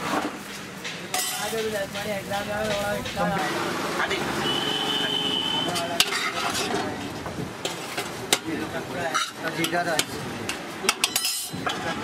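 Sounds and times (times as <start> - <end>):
ladle scraping metal pot: 5.6 - 8.4.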